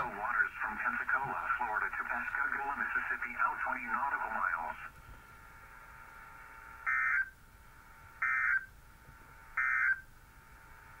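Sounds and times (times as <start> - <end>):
faint receiver hiss: 0.0 - 11.0
warbling data tone bursts: 6.8 - 7.4, 8.2 - 8.7, 9.5 - 10.1.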